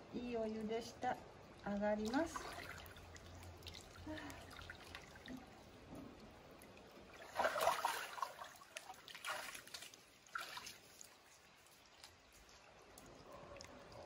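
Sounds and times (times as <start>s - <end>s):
water running and dripping: 1.5s - 14.0s
bath water splashing: 2.0s - 12.3s.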